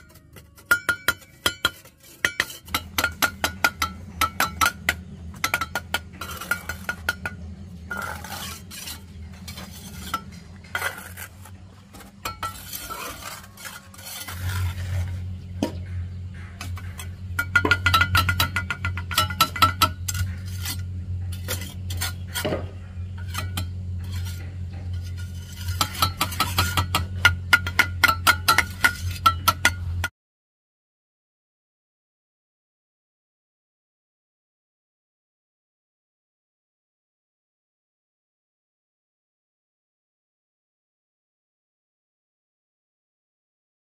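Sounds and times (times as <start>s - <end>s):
metal tool tapping and scraping: 0.0s - 11.2s, 11.9s - 14.2s, 15.5s - 30.1s
steady low hum: 0.9s - 30.1s.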